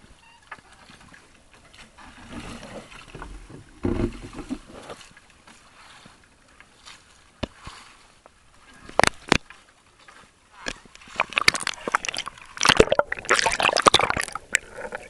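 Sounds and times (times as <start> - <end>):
water splashing around a boat: 0.0 - 15.0.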